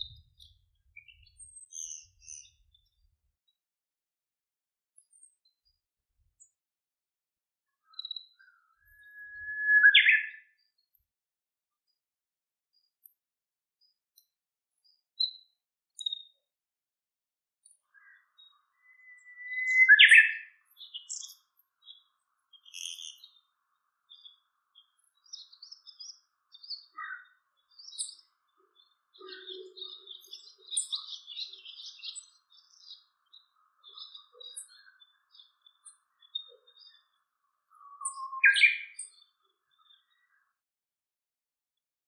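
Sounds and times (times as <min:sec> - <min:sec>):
faint high bird chirps: 0:00.0 - 0:03.6, 0:05.0 - 0:06.7, 0:07.7 - 0:11.1, 0:13.8 - 0:16.5, 0:17.6 - 0:40.7
songbird whistle and chirp: 0:07.8 - 0:10.9, 0:18.0 - 0:23.4, 0:24.1 - 0:40.4.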